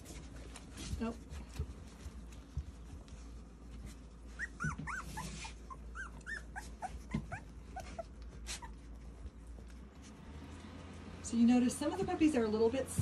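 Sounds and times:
faint rustling: 0.0 - 13.0
puppies squeaking and whimpering: 4.0 - 10.2.

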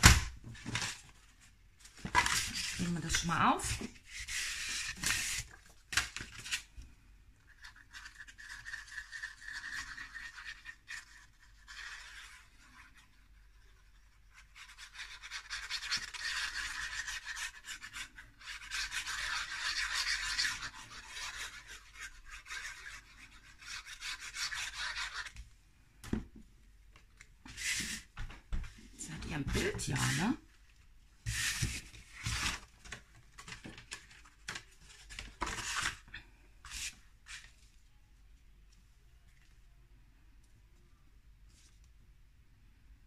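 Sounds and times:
paper sliding and scraping: 0.6 - 6.7, 27.4 - 28.2, 31.2 - 36.0, 36.6 - 37.7.

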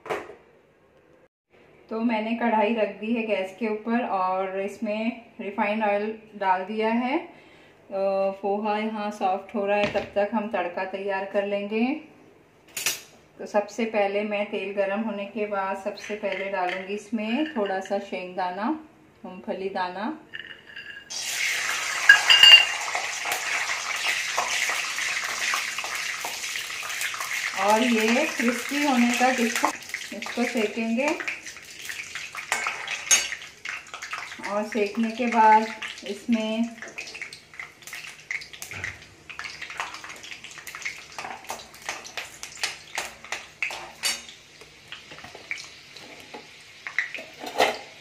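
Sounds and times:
steel spoon clinking in pan: 20.3 - 21.1, 22.1 - 22.8, 32.5 - 33.4
oil sizzling: 20.3 - 48.0.

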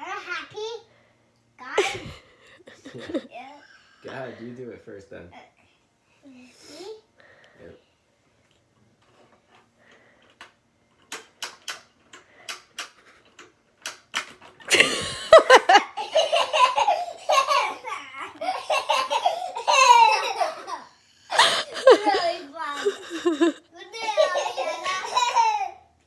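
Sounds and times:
children laughing loudly: 1.8 - 3.4, 14.7 - 25.9
toy crank clicking: 10.2 - 14.8
spring-loaded arm snapping: 11.0 - 14.5.

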